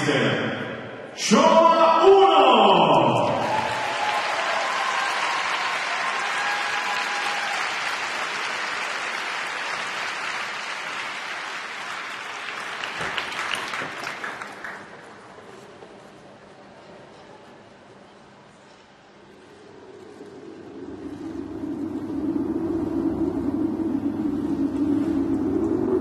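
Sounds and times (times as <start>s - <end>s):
audience applauding: 3.1s - 15.6s.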